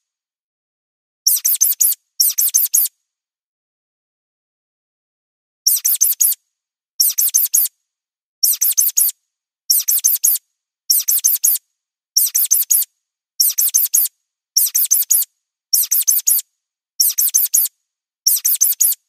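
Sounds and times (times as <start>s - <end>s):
high-pitched mouse squeaks: 1.3s - 2.9s, 5.7s - 6.4s, 7.0s - 7.7s, 8.4s - 11.6s, 12.2s - 16.4s, 17.0s - 17.7s, 18.3s - 19.0s.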